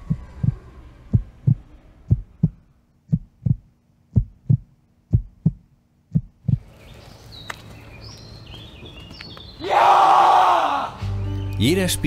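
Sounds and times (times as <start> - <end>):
heartbeat thumps: 0.0 - 6.7
faint steady hum: 0.0 - 9.5.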